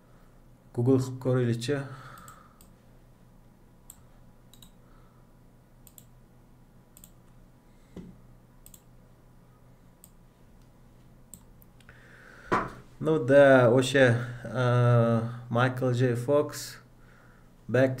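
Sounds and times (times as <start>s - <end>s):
keyboard and mouse clicks: 3.9s - 4.8s, 5.8s - 6.1s, 7.0s - 7.4s, 8.6s - 8.9s.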